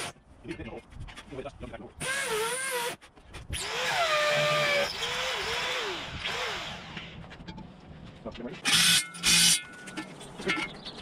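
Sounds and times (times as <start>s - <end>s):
cordless drill boring into concrete: 3.6s - 7.0s.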